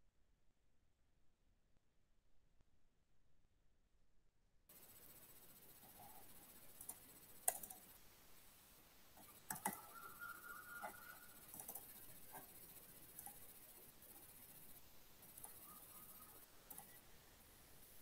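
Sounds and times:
faint steady tone: 4.7s - 18.0s
microphone hiss: 4.7s - 18.0s
faint clicks and taps: 5.6s - 8.0s, 9.1s - 18.0s.

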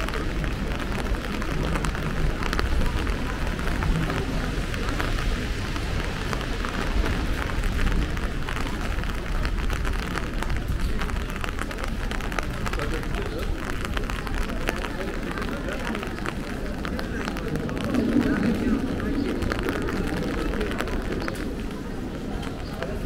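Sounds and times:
steady rain: 0.0s - 23.0s
low rumble: 14.0s - 23.0s.

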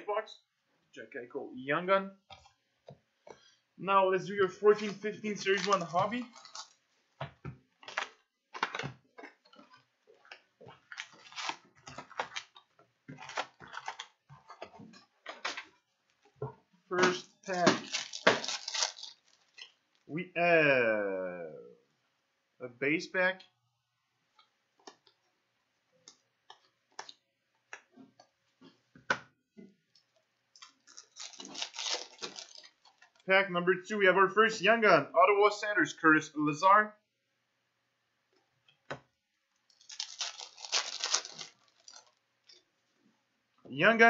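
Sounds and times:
cardboard and wrappers crinkling: 4.7s - 6.9s, 7.8s - 15.8s, 16.9s - 20.1s, 30.6s - 33.3s, 39.7s - 42.6s.

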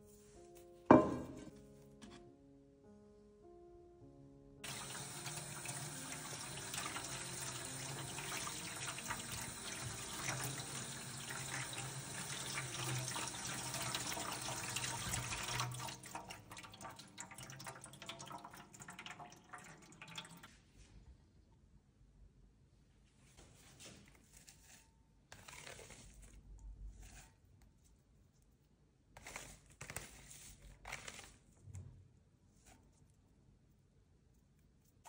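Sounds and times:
water dripping and trickling: 4.6s - 20.5s
tap water pouring: 4.6s - 20.6s.

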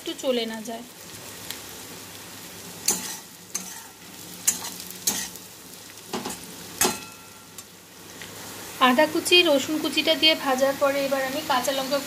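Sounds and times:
food sizzling in oil: 0.0s - 12.0s
metal spatula scraping pan: 2.8s - 5.4s.

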